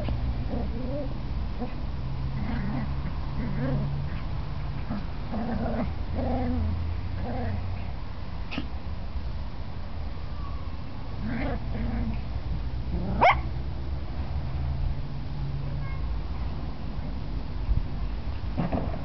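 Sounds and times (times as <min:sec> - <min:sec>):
puppies growling and yipping: 0:00.0 - 0:07.8, 0:11.2 - 0:12.3.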